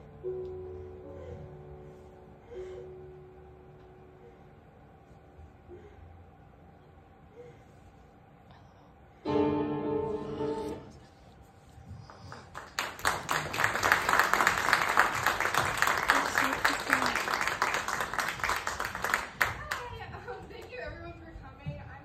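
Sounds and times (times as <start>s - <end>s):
recorded music chord: 9.3s - 11.0s
audience applause: 12.1s - 20.1s.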